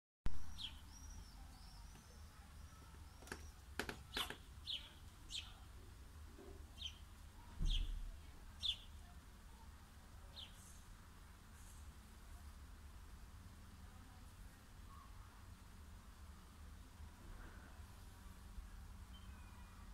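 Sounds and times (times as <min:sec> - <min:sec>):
small birds chirping: 0:00.3 - 0:10.9, 0:17.7 - 0:19.9
faint low rumble: 0:04.5 - 0:19.9.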